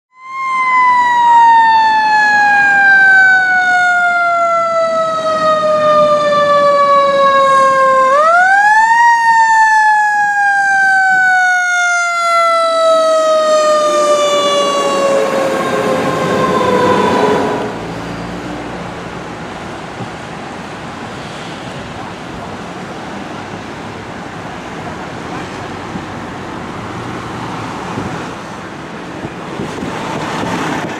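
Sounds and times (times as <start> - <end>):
fire engine siren: 0.1 - 19.7
road noise: 0.1 - 30.9
steady traffic noise: 0.1 - 30.9.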